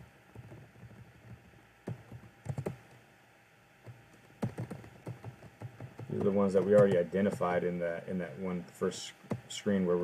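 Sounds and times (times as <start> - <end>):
computer keys and mouse clicks: 0.3 - 3.0, 3.8 - 7.6.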